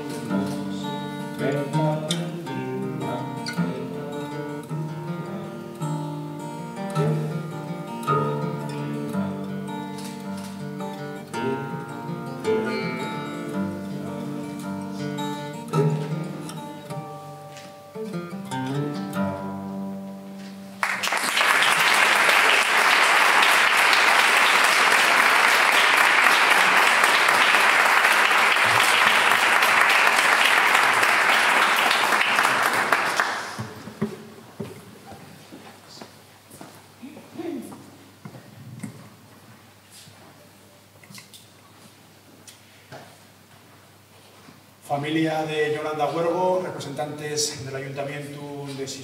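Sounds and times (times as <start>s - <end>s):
acoustic guitar notes ringing: 0.0s - 20.8s
audience applause: 20.8s - 34.0s.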